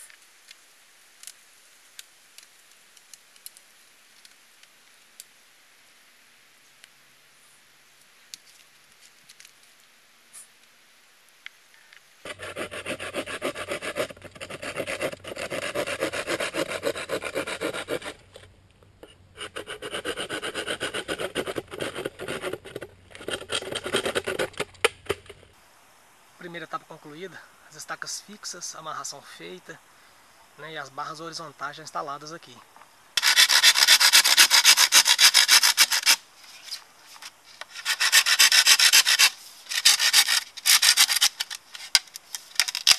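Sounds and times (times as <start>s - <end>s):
saw cutting bamboo: 12.3s - 18.5s, 19.4s - 25.2s, 33.2s - 36.2s, 37.6s - 41.9s.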